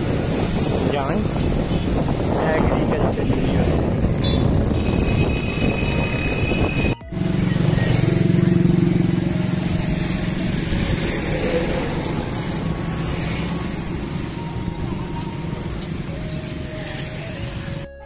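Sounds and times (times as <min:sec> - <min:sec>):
vehicle engine rumbling: 0:00.0 - 0:18.0.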